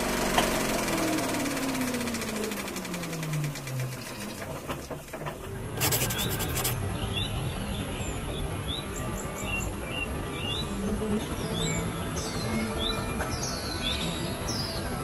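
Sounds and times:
mechanical hum with rattle: 0.0s - 7.0s
short rasping rattle: 5.8s - 6.8s.

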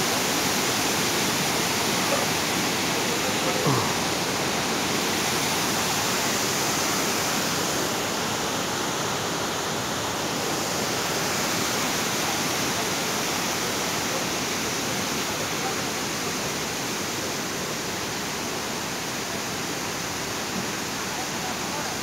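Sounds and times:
waterfall roar: 0.0s - 22.0s.

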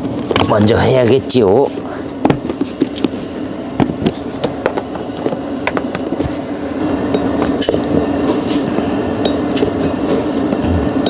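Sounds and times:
steady low hum: 0.0s - 11.0s
pot and lid clinking: 9.2s - 10.0s.

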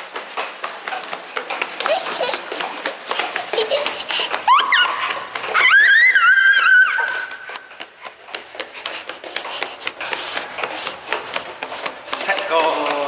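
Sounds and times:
running footsteps on tiled floor: 0.0s - 13.0s
child squealing: 3.6s - 7.5s.

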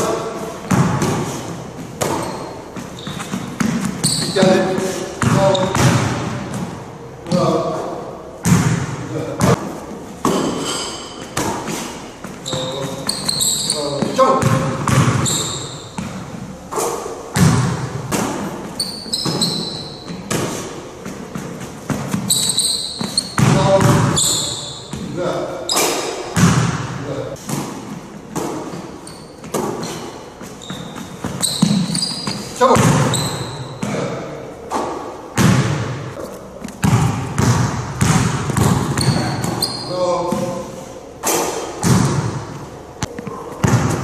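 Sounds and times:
basketball bouncing on hard court: 0.6s - 6.8s, 8.4s - 9.6s, 11.2s - 16.4s, 17.3s - 25.2s, 26.4s - 34.0s, 35.4s - 40.6s, 41.8s - 44.0s
short high squeak: 12.4s - 13.9s, 15.2s - 15.9s, 18.8s - 20.1s, 22.3s - 23.4s, 30.6s - 32.5s.

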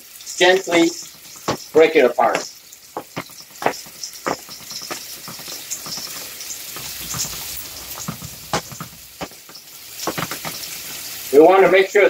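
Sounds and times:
meat sizzling in a frying pan: 0.0s - 12.0s.

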